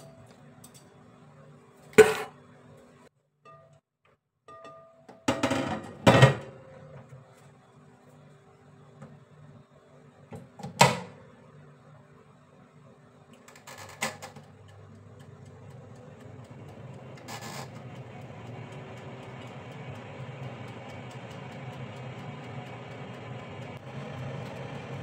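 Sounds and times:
oven fan whirring: 6.4 - 25.0.

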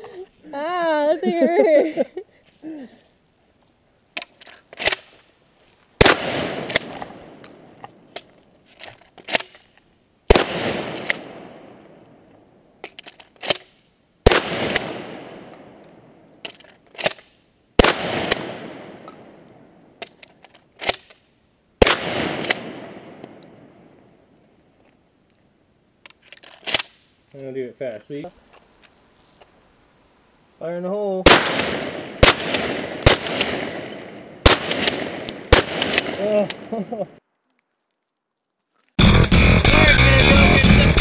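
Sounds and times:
shotgun shots echoing: 6.0 - 8.1, 10.3 - 12.1, 14.2 - 16.2, 17.8 - 19.8, 21.8 - 24.0, 31.2 - 37.0.

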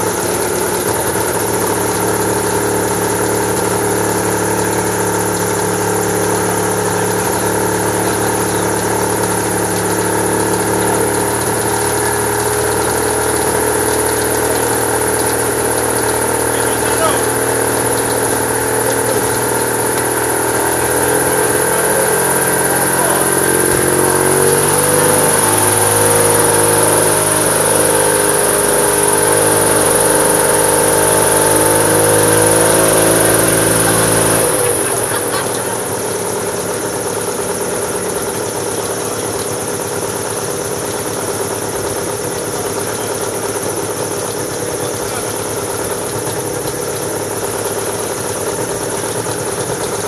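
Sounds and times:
gyrocopter engine and propeller: 0.0 - 50.0.

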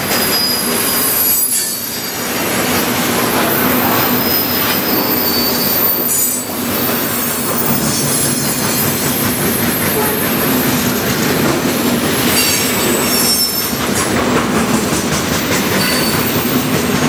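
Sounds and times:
train rumble: 0.0 - 17.0
train wheels clattering on rails: 0.0 - 17.0
high-pitched wheel squeal: 0.1 - 2.2, 3.5 - 11.0, 12.3 - 13.8, 15.7 - 16.7.

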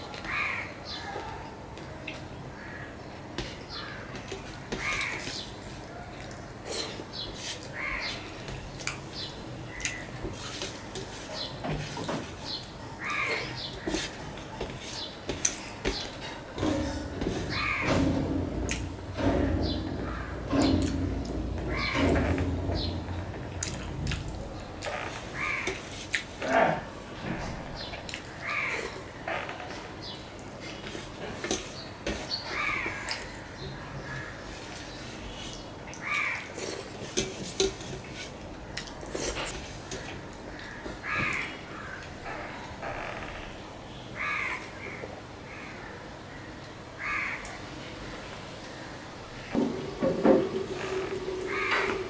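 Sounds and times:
rough voice-like sounds: 26.4 - 26.9
crow cawing: 44.2 - 44.6, 47.0 - 47.4, 51.2 - 52.0.

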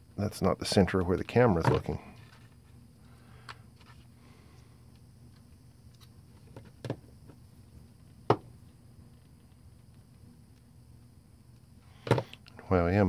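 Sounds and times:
plastic box clicks and knocks: 6.5 - 7.0, 12.0 - 12.4.

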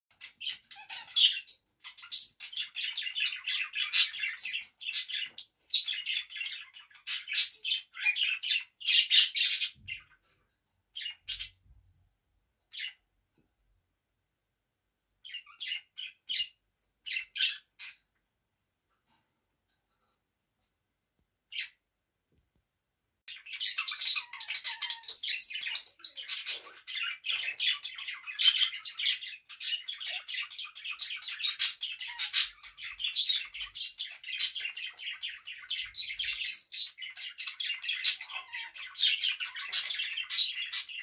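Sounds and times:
budgerigar warbling and chirping: 0.1 - 10.1, 15.2 - 18.0, 23.3 - 41.0.

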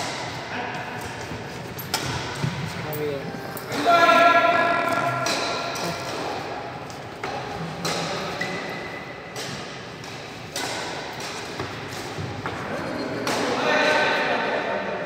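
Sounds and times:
rackets hitting shuttlecock: 0.0 - 2.8, 4.8 - 13.7.

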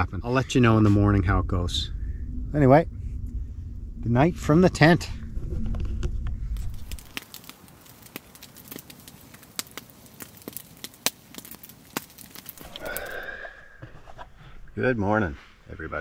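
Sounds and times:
low rumble: 0.0 - 7.5
campfire crackling and popping: 5.6 - 14.8
short breathy sound: 12.6 - 13.8.

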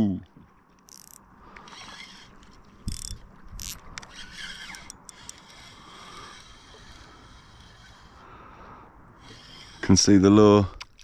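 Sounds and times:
fishing reel ratcheting: 0.9 - 8.2, 9.2 - 10.2.

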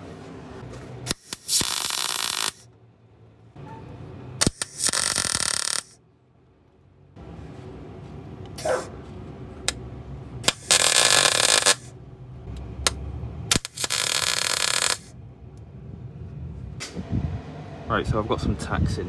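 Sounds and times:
welding arc crackle: 1.1 - 2.7, 4.4 - 6.0, 10.4 - 11.9, 13.5 - 15.1.

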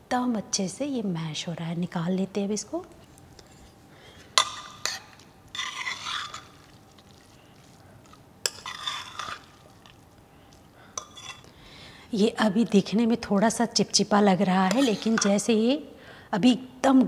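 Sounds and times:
spoon scraping through grains: 4.7 - 7.8, 8.5 - 9.9, 11.0 - 11.5, 14.7 - 15.3.

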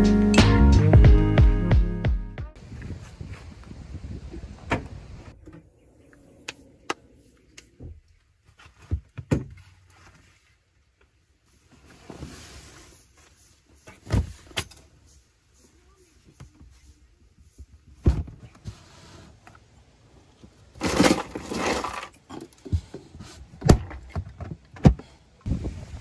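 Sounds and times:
bags rustling: 20.7 - 22.2.

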